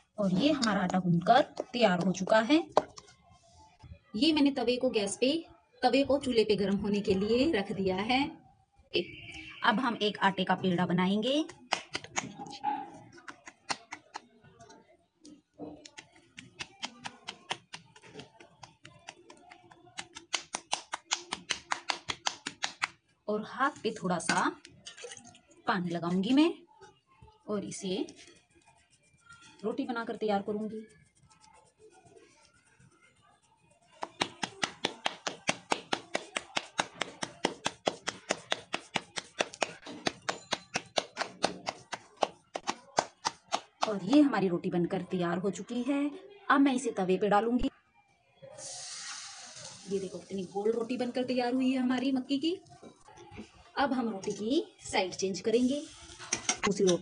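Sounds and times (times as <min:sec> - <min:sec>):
hands slapping dough: 0:11.5 - 0:12.4, 0:13.2 - 0:14.3, 0:15.8 - 0:23.0, 0:33.9 - 0:44.3.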